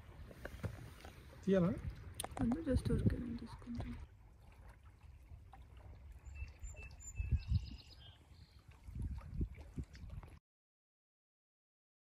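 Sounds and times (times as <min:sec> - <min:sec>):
waves lapping against rocks: 0:00.0 - 0:07.2.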